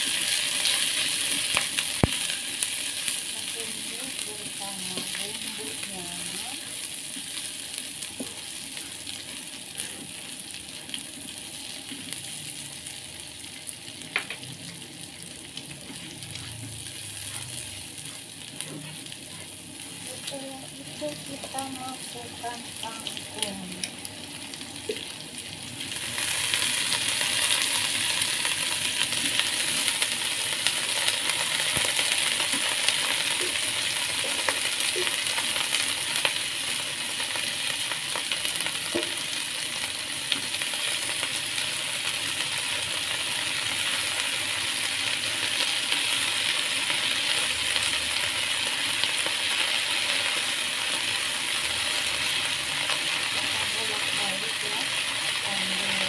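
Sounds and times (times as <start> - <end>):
greens sizzling in hot oil: 0.0 - 56.0.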